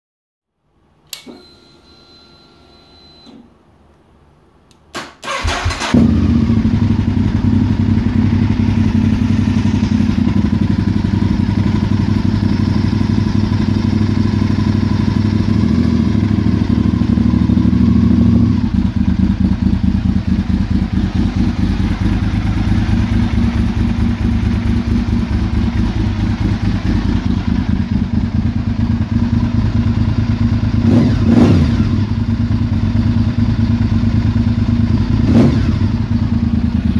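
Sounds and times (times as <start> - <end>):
engine starter turning over: 4.9 - 6.2
motorcycle engine idling: 5.3 - 36.9.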